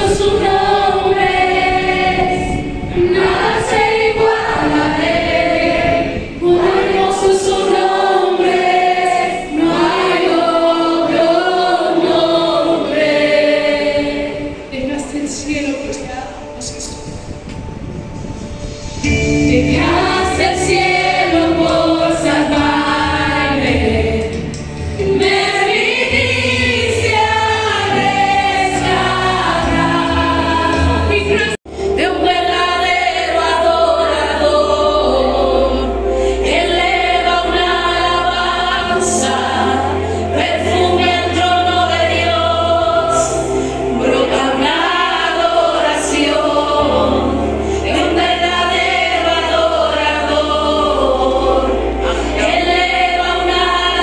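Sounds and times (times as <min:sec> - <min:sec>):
group singing worship song: 0:00.0 - 0:17.5, 0:18.3 - 0:54.0
sustained low accompaniment: 0:00.0 - 0:54.0.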